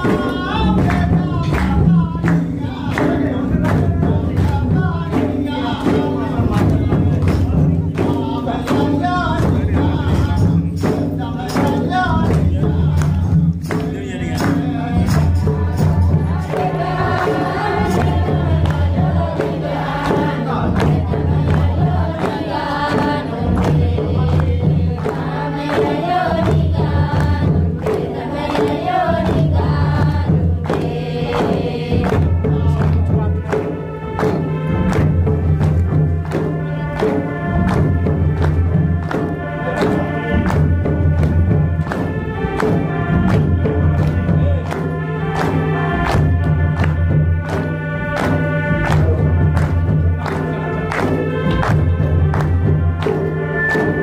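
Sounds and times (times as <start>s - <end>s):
deep drum beat: 0.0s - 54.0s
group of voices singing: 0.0s - 54.0s
sharp percussion strikes: 0.0s - 54.0s.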